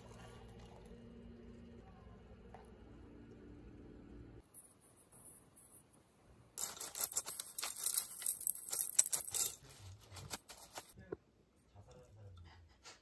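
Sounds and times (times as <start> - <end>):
cereal flakes rattling into glass: 6.6 - 10.4
plastic bag crinkling: 6.6 - 11.0.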